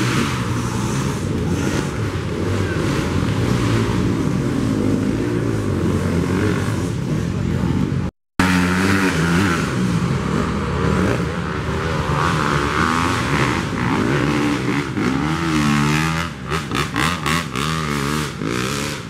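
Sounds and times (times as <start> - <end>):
dirt bike engines revving: 0.0 - 19.0.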